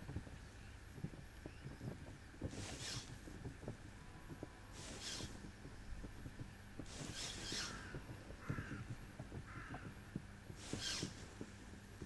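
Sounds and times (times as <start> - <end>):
bird calling: 7.0 - 10.0.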